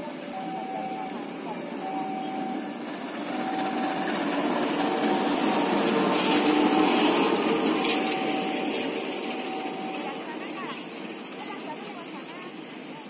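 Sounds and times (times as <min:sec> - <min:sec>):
locomotive passing: 0:00.0 - 0:13.0
wheels rolling over rails: 0:01.7 - 0:12.8
short high tone: 0:03.3 - 0:10.5.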